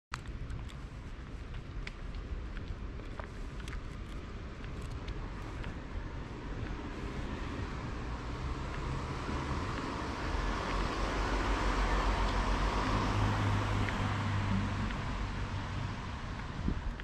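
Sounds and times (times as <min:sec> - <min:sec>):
low traffic rumble: 0:00.1 - 0:17.0
car passing: 0:03.3 - 0:17.0.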